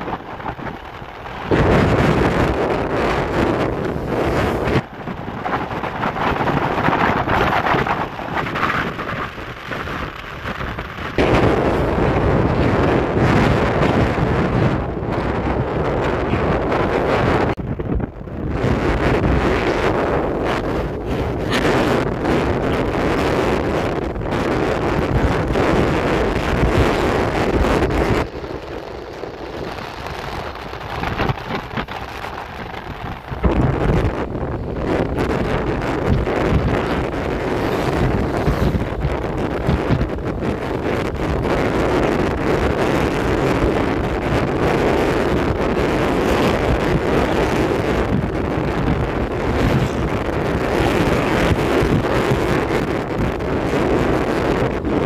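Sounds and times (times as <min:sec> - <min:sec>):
motorcycle road noise: 0:00.0 - 0:55.0
wind buffeting microphone: 0:00.0 - 0:55.0.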